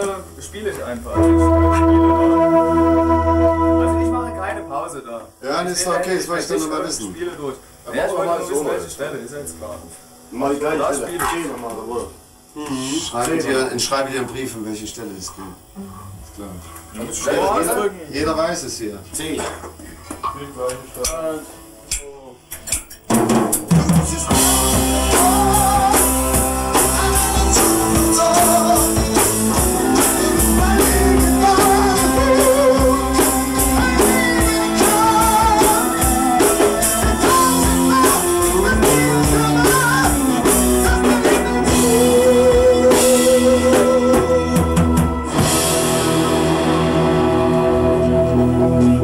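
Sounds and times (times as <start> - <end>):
rock band playing: 1.1 - 5.0, 22.8 - 49.0
man singing: 23.7 - 46.2.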